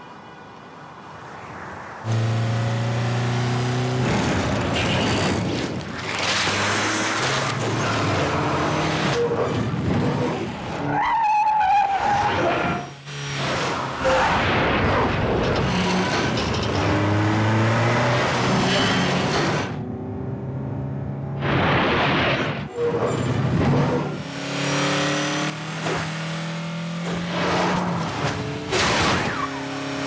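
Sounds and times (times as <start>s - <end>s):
car engine revving: 2.1s - 5.5s, 23.2s - 30.0s.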